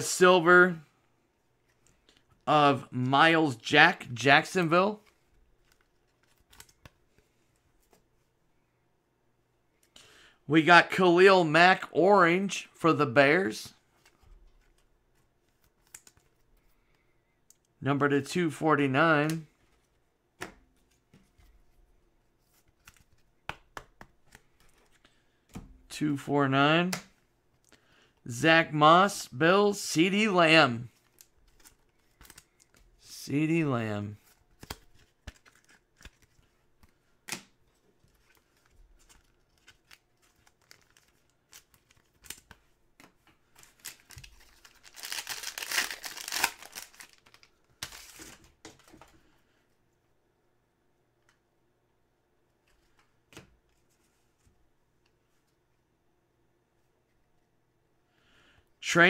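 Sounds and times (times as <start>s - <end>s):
cards clicking and tapping: 5.0s - 8.0s, 22.7s - 24.9s
foil wrapper crinkling: 38.3s - 42.5s, 43.6s - 48.4s
foil wrapper ripping: 43.7s - 48.2s.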